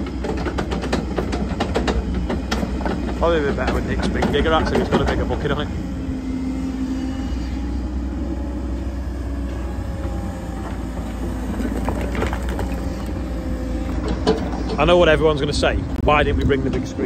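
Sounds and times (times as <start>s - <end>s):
excavator diesel engine: 0.0s - 17.0s
hydraulic whine: 0.0s - 17.0s
bucket clatter: 11.1s - 13.3s.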